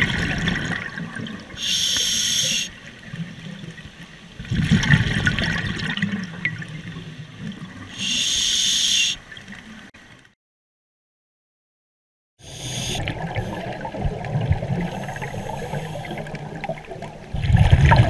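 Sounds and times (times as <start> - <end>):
regulator inhale hiss: 1.6 - 2.8, 7.9 - 9.2, 12.4 - 13.6, 14.9 - 16.4
gurgling exhaled bubbles: 12.6 - 18.0.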